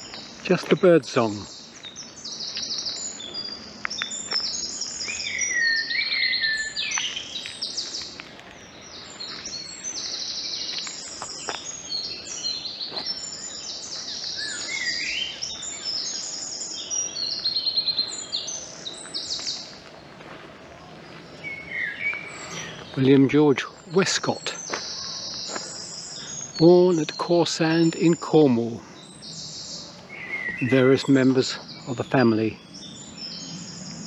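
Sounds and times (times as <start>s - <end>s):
songbirds singing: 0.0s - 34.0s.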